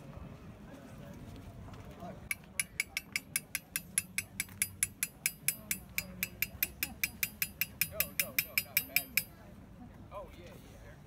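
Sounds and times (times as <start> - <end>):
hammer tapping steel graver: 2.3 - 9.4.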